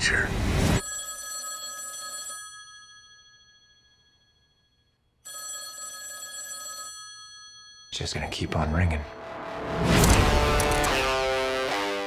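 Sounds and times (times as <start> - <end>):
telephone ringing: 0.8 - 8.5.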